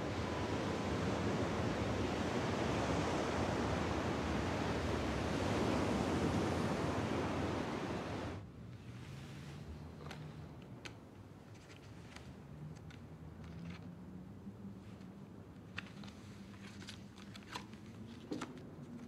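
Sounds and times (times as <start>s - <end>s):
waves washing on shore: 0.0s - 8.4s.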